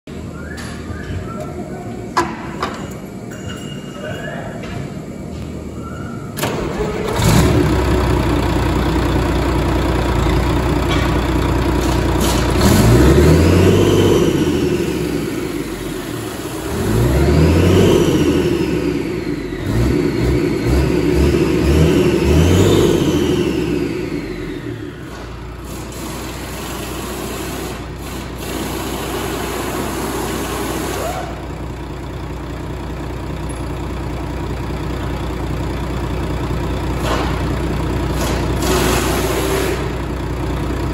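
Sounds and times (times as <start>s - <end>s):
diesel engine idling: 4.9s - 40.9s
diesel engine starting and revving: 5.6s - 40.9s.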